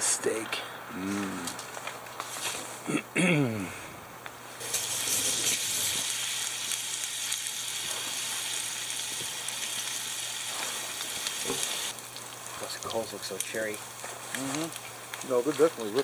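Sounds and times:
bacon sizzling in a skillet: 4.4s - 16.0s.

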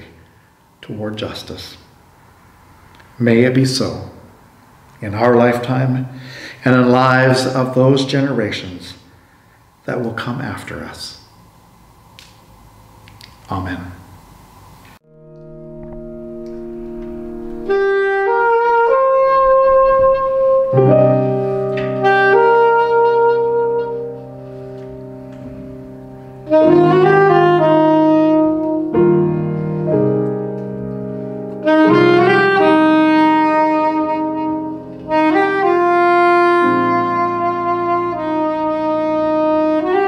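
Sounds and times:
piano chords: 15.0s - 40.0s
soprano saxophone melody: 15.1s - 40.0s.

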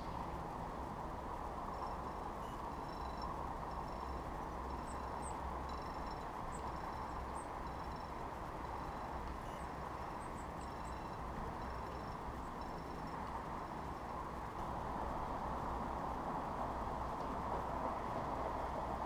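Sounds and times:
distant city traffic hum: 0.0s - 19.0s
small birds chirping: 1.7s - 14.1s.

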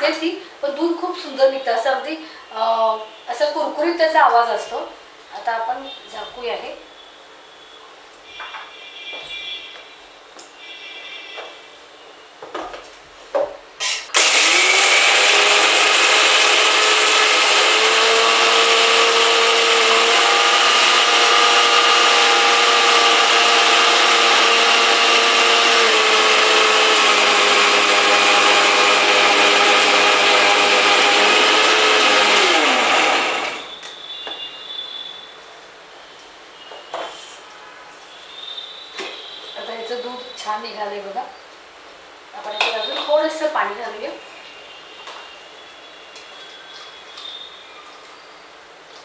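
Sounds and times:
mixer grinder motor whine: 14.1s - 33.9s.

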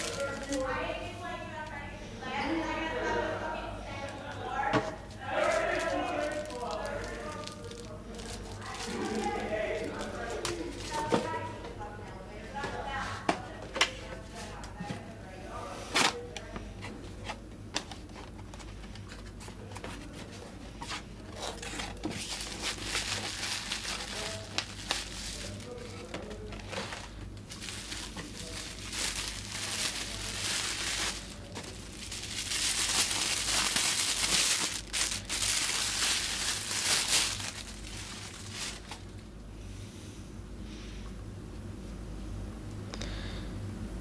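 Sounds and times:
bubble wrap crinkling: 0.0s - 1.4s, 4.8s - 11.4s, 17.8s - 39.3s.

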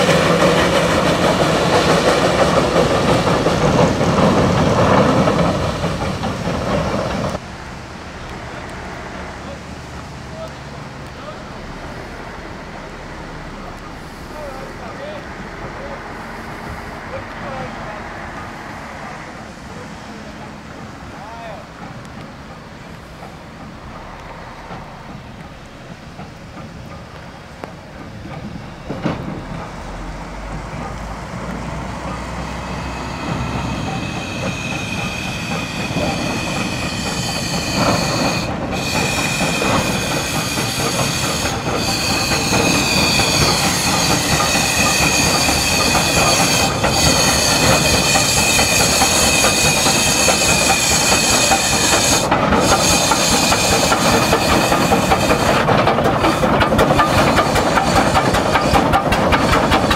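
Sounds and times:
steam hissing: 0.0s - 7.4s, 21.2s - 59.9s
steam locomotive passing: 0.0s - 59.9s
high wheel squeal: 32.0s - 59.9s.

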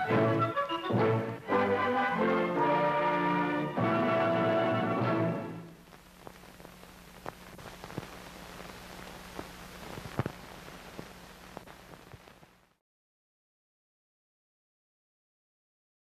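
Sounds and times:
closing music: 0.0s - 5.8s
film soundtrack hiss: 0.0s - 12.8s
clicks and pops: 5.9s - 12.4s.

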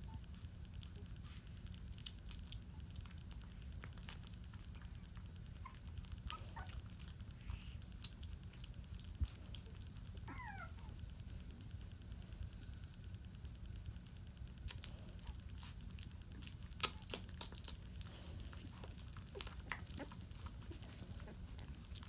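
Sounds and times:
low steady rumble: 0.0s - 22.0s
puppy whimper: 4.6s - 7.8s, 9.6s - 11.0s, 16.8s - 22.0s
puppy squeaking: 10.2s - 10.9s.

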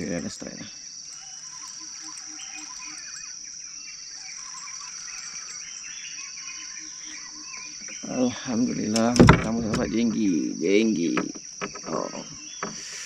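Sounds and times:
high insect drone: 0.0s - 13.0s
bird chirps and whistles: 1.1s - 8.0s.

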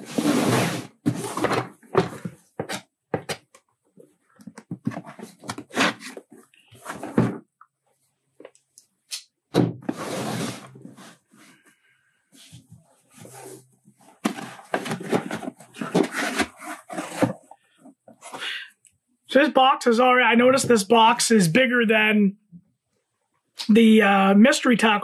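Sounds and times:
cardboard box scraping and rustling: 0.0s - 2.3s, 4.9s - 7.4s, 9.9s - 11.3s, 13.2s - 17.5s.

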